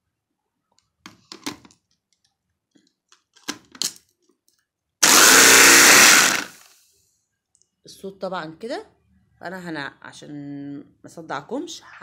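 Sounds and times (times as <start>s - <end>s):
electric blender running: 5.0s - 6.7s.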